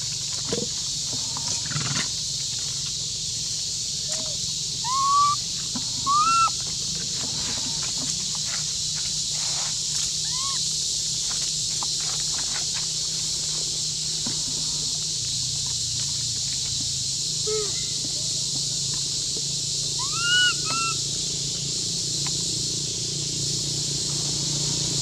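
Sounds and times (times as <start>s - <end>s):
baby monkey high calls: 4.1s - 6.7s, 10.2s - 10.7s, 17.4s - 17.9s, 19.9s - 21.1s.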